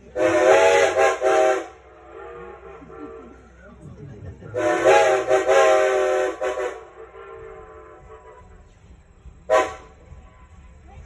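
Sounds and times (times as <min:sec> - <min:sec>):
steam locomotive whistle: 0:00.1 - 0:03.4, 0:04.6 - 0:08.6, 0:09.5 - 0:10.0.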